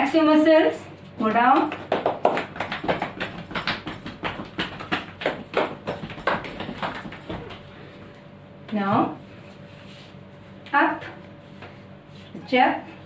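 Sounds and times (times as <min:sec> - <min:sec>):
irregular thumps: 0:01.4 - 0:07.7.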